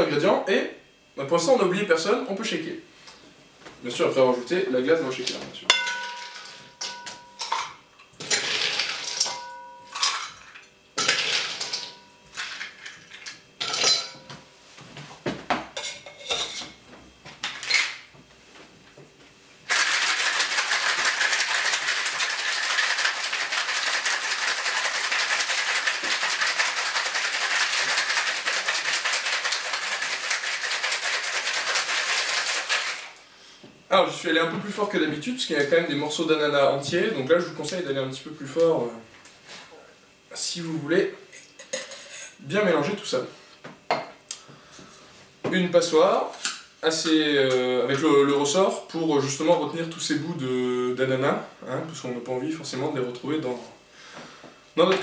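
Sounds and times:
ice clinking into metal shaker: 5.8s - 14.2s, 19.7s - 33.1s
ice rattling in shaken shaker: 19.7s - 33.2s.

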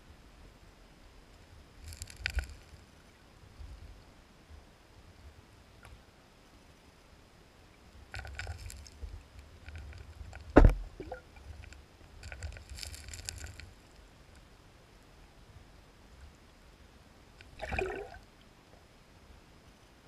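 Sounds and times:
underwater stones clicking and scraping: 1.8s - 2.8s, 8.1s - 14.5s.

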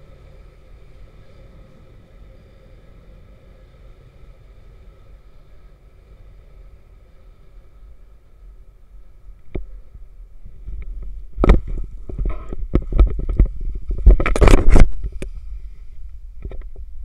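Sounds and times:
low rumble on microphone: 0.0s - 17.0s
knocks and scrapes: 10.5s - 15.6s.

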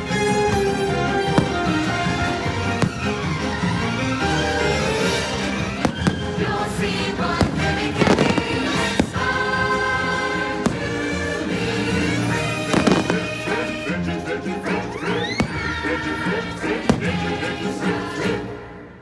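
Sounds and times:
music from loudspeakers: 0.0s - 19.0s
fireworks bursting with sharp bangs: 1.2s - 3.3s, 5.8s - 6.6s, 7.3s - 9.7s, 10.4s - 11.2s, 12.6s - 13.6s, 16.8s - 17.5s.

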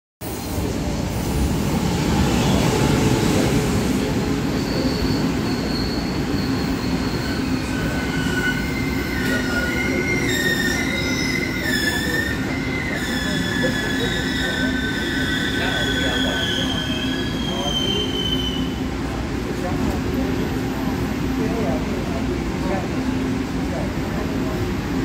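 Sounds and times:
train wheels rumbling on rail: 0.2s - 25.0s
wheel squeal: 4.6s - 18.7s.

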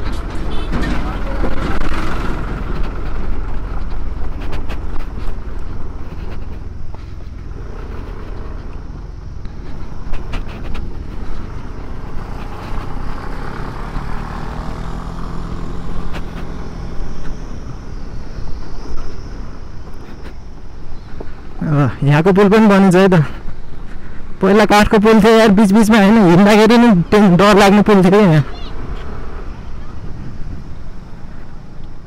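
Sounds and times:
scooter engine running: 0.0s - 21.8s
wind rumble on microphone: 0.0s - 21.8s, 25.3s - 32.0s.

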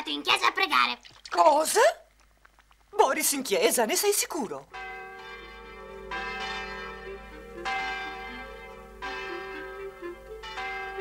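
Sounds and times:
church bell tolling: 4.7s - 11.0s.

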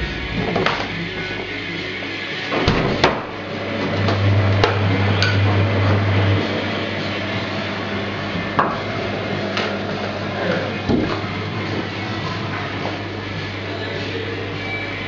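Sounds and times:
low hum: 0.0s - 9.4s.

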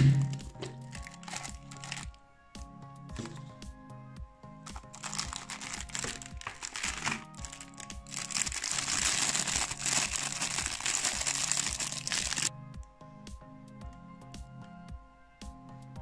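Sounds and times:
background music: 0.0s - 16.0s
plastic packaging crinkling: 0.3s - 2.2s, 4.7s - 12.5s.

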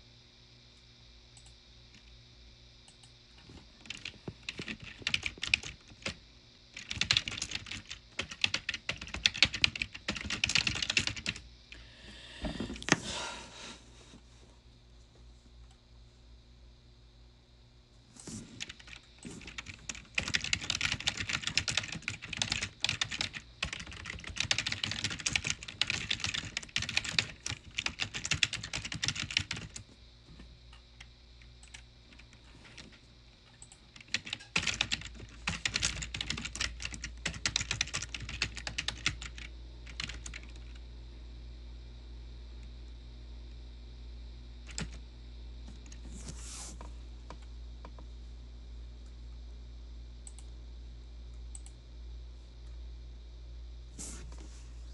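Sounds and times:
keyboard typing: 3.8s - 6.2s, 6.8s - 11.4s, 18.6s - 29.8s, 31.6s - 40.8s, 44.7s - 45.0s.

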